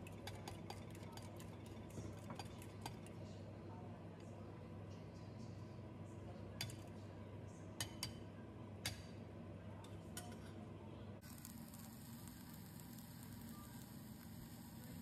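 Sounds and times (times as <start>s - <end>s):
metal spoon clinking glass bowl: 0.0s - 3.1s
steady low hum: 0.0s - 15.0s.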